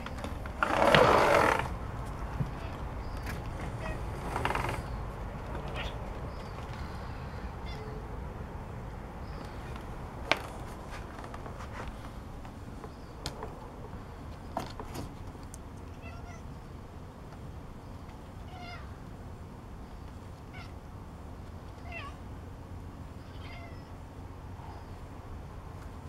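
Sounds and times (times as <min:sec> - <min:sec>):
cat meowing: 0:03.7 - 0:04.7, 0:05.6 - 0:06.0, 0:07.6 - 0:08.0, 0:16.0 - 0:16.5, 0:18.5 - 0:19.0, 0:21.8 - 0:22.2, 0:23.2 - 0:23.9.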